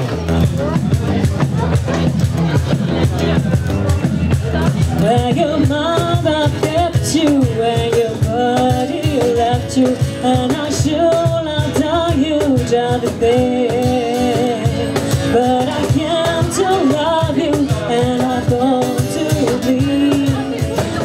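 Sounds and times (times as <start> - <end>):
cajon beat: 0.0 - 21.0
strummed acoustic guitar: 0.0 - 21.0
woman singing into microphone: 4.6 - 21.0.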